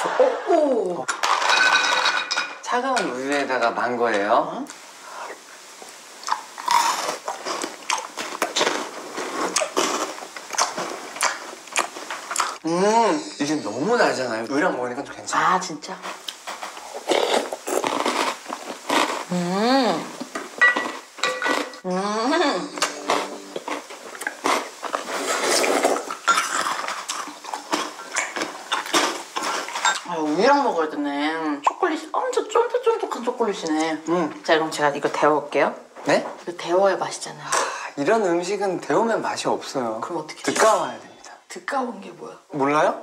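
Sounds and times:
crunching and chewing: 6.2 - 12.6, 16.2 - 19.3, 23.6 - 30.0.

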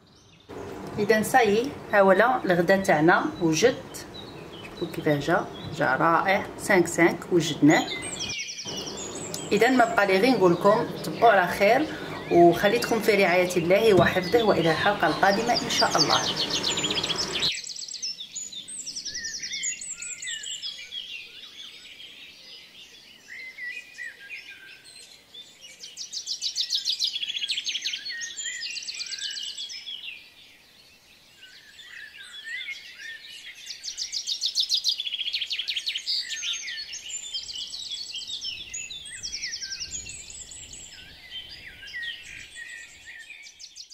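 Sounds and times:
birds chirping and trilling: 0.0 - 43.9.

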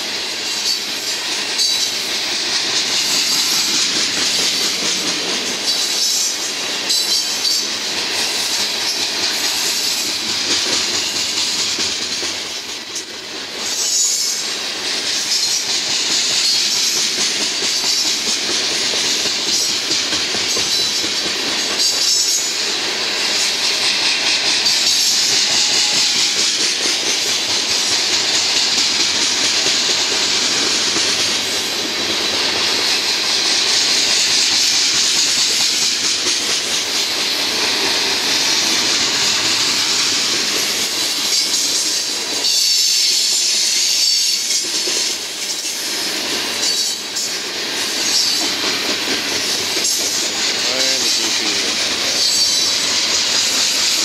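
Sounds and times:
high hiss of wheel on rail: 0.0 - 54.0
steel wheels clattering on rail: 0.0 - 54.0.

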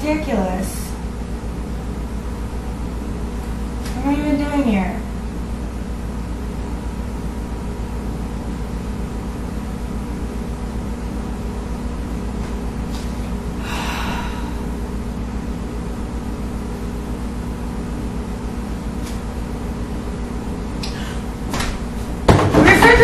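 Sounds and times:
steady electrical hum: 0.0 - 23.0
woman sighing: 13.6 - 14.8.

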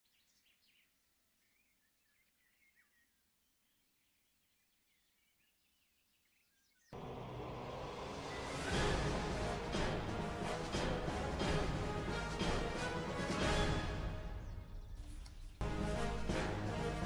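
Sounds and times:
songbirds chirping: 0.0 - 10.6, 11.4 - 17.0
loud music: 7.0 - 14.7, 15.6 - 17.0.

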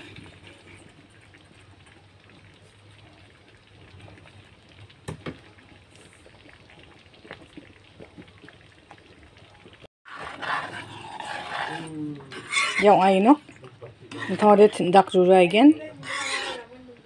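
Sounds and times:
broth bubbling and popping: 0.0 - 9.9.

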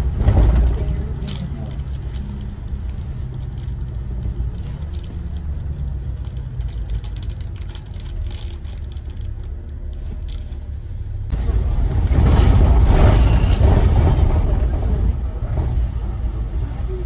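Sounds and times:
vehicle engine rumbling: 0.0 - 17.0.

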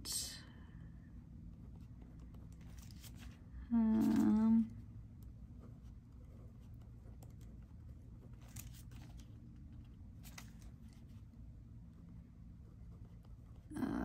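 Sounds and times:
pages flipping: 2.6 - 4.4, 8.3 - 11.2
pen scratching on paper: 5.4 - 8.8, 12.0 - 13.7.

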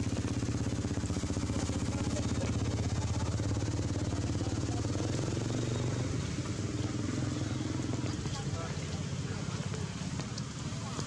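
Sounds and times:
small engine idling: 0.0 - 11.0.

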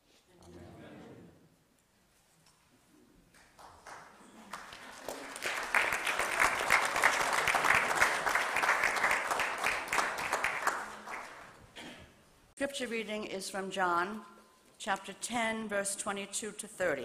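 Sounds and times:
congregation applauding: 3.3 - 11.8.

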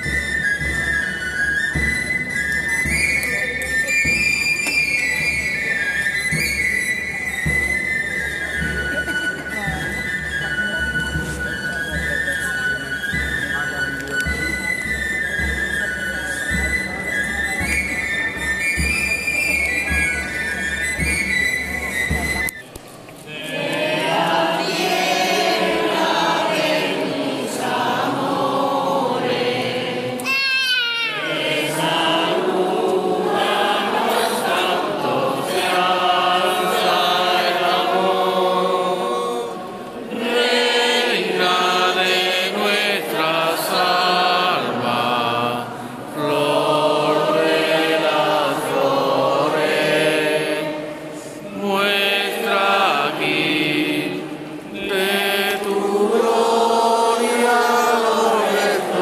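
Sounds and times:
high falling cry: 30.2 - 31.3.

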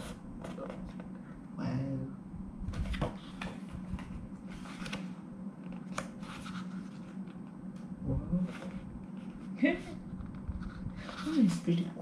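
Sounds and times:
photo book pages rustling: 2.7 - 7.4.

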